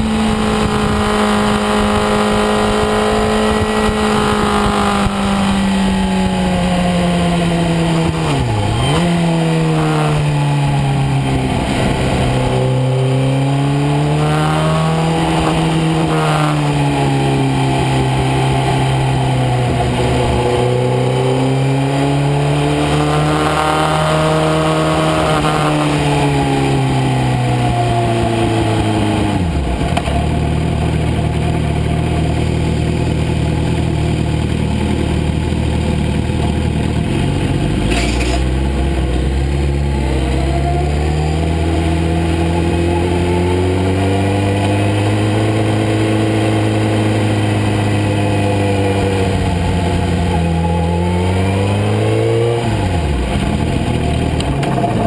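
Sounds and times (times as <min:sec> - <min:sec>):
wind rushing on microphone: 0:00.0 - 0:08.8, 0:09.6 - 0:16.6
motorcycle engine: 0:00.0 - 0:55.0.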